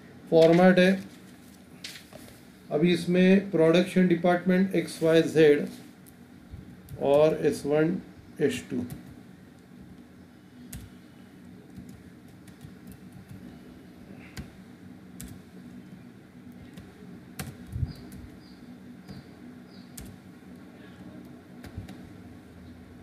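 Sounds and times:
low steady hum: 0.0 - 23.0
computer keyboard keystrokes: 10.7 - 11.0, 11.7 - 13.4, 15.2 - 15.4, 16.5 - 18.4, 20.0 - 20.2, 21.6 - 22.0.

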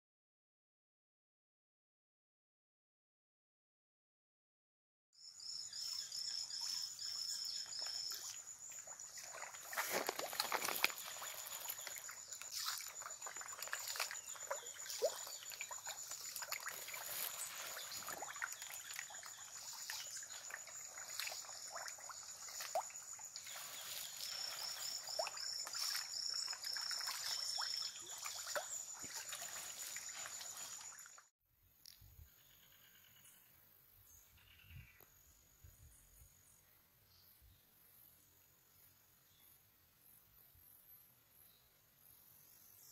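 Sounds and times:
water trickling and splashing: 6.5 - 31.3.

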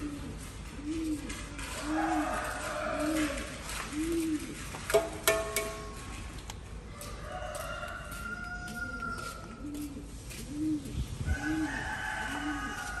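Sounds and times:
dove cooing: 0.0 - 4.8, 8.8 - 13.0.

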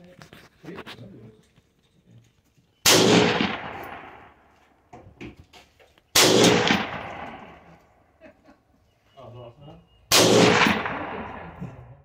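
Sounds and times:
rifle shots: 2.8 - 4.4, 6.1 - 7.7, 10.1 - 11.7.

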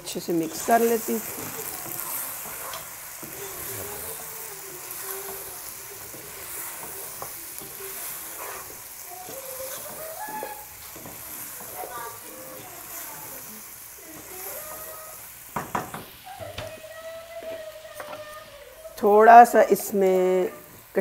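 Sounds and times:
chicken sizzling in hot oil: 0.0 - 21.0
wooden spatula scraping a pot: 0.4 - 13.5.

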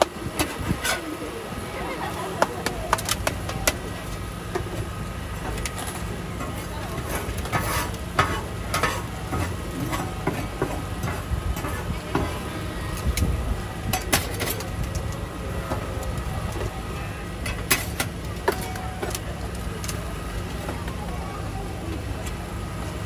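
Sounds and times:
metal spatula scraping griddle: 0.4 - 1.2, 5.4 - 12.6.

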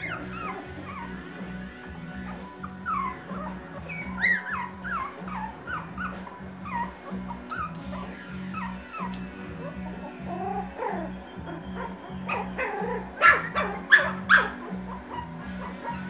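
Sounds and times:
puppies whimpering and yipping: 0.0 - 16.0.

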